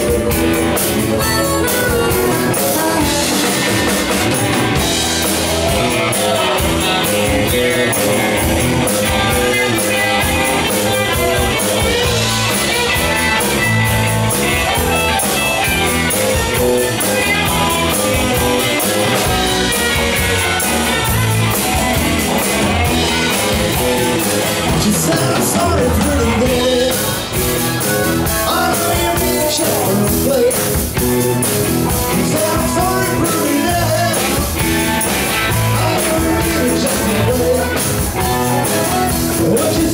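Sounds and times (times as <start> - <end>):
man singing: 0.0 - 13.7, 22.8 - 39.9
live rock band playing: 0.0 - 39.9.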